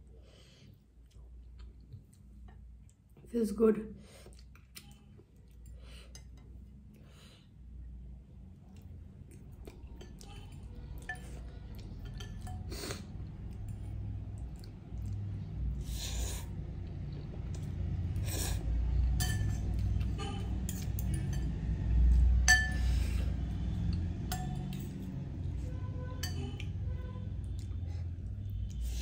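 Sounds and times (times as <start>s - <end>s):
cutlery clinking on glass bowl: 9.9s - 12.7s, 19.1s - 21.6s, 22.4s - 22.9s, 24.3s - 25.0s, 26.2s - 26.6s.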